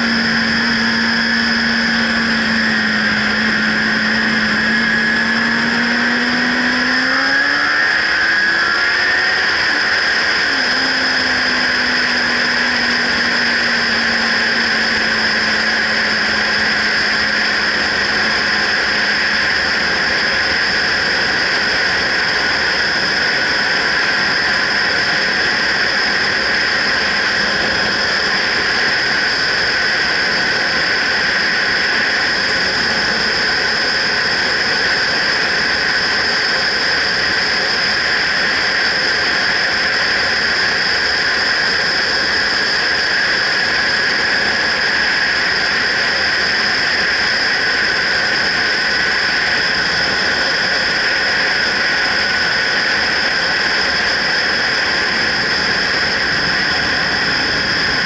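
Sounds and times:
constant high whistle: 0:00.0 - 0:58.0.

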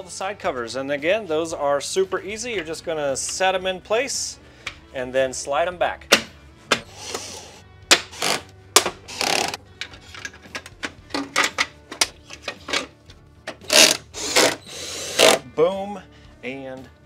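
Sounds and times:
metal covers clicking and rattling: 0:07.9 - 0:14.6.

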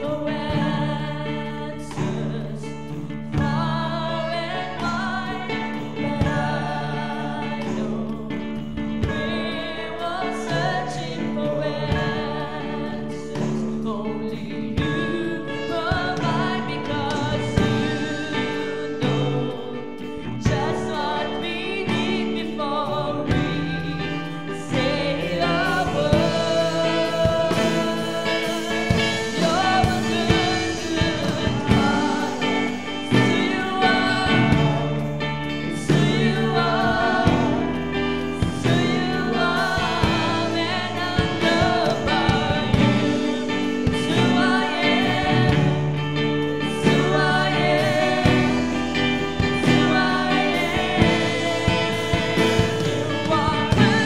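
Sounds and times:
drums: 0:00.0 - 0:54.0
guitars: 0:00.0 - 0:54.0
singers singing together: 0:00.0 - 0:54.0.

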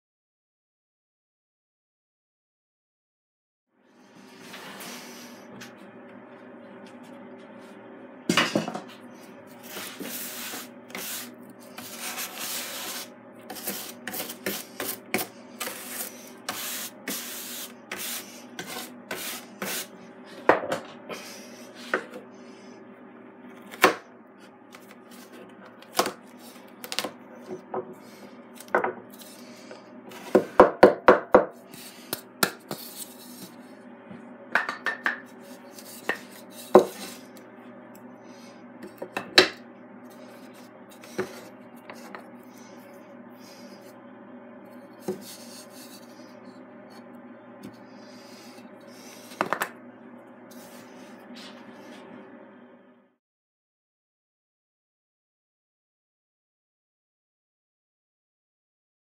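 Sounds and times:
low machine hum: 0:03.7 - 0:53.2
wood shavings brushed and scraped: 0:09.2 - 0:20.0, 0:45.0 - 0:46.4.

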